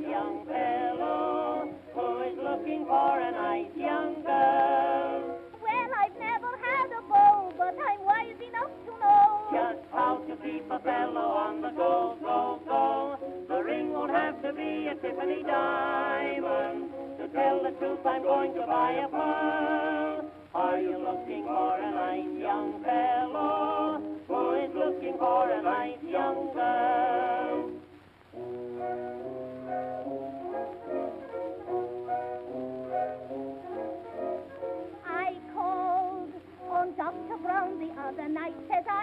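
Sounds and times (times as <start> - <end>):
voices singing with vibrato: 0.0 - 28.0, 29.7 - 39.0.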